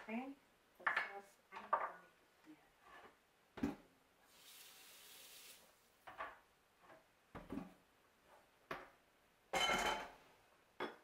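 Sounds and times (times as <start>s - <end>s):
tap water running: 4.3s - 5.8s.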